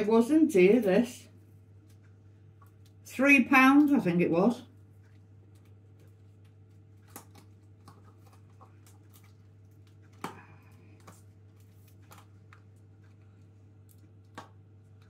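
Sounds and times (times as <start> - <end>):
steady low hum: 0.0 - 15.0
packaging crinkling and clicking: 5.0 - 10.4.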